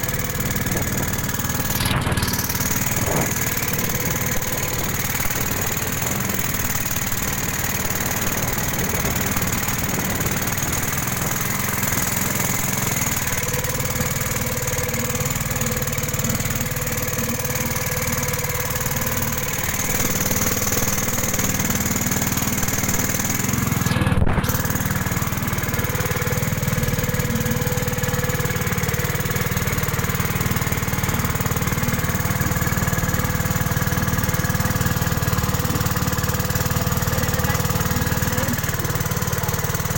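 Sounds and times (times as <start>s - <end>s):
water rushing past hull: 0.0s - 14.8s
boat engine running: 0.0s - 39.9s.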